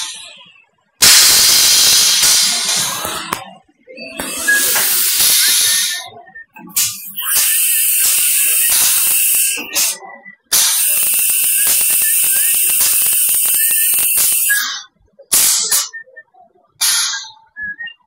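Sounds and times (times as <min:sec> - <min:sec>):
high machine whine: 0:01.0 - 0:03.3, 0:06.8 - 0:14.7
machine hissing: 0:01.0 - 0:03.3, 0:04.2 - 0:06.1, 0:06.8 - 0:14.6
crackling: 0:10.6 - 0:14.6.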